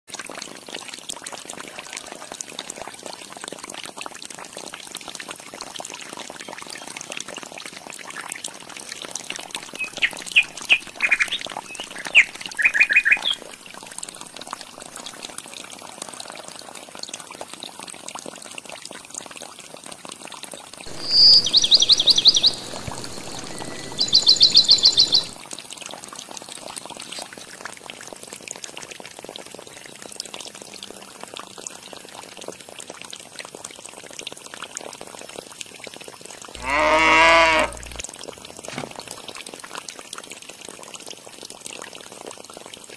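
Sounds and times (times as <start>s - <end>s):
water trickling: 0.1s - 42.9s
rapid trilling calls: 20.9s - 25.4s, 36.6s - 38.0s
cow lowing: 36.6s - 38.0s.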